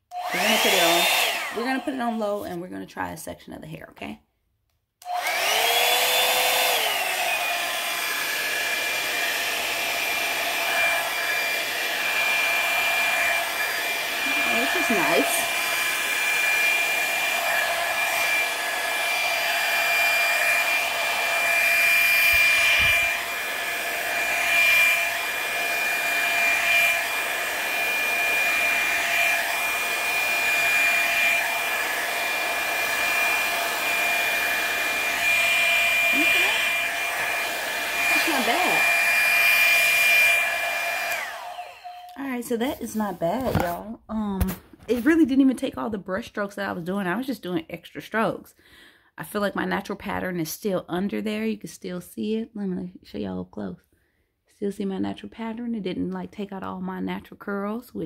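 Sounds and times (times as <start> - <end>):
hair dryer brush whining: 0.0 - 2.8, 5.0 - 45.4.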